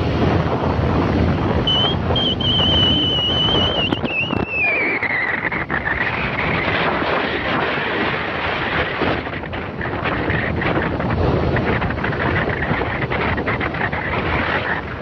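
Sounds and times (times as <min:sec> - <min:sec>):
wind buffeting microphone: 0:00.0 - 0:15.0
high whistle-like tone: 0:01.6 - 0:05.5.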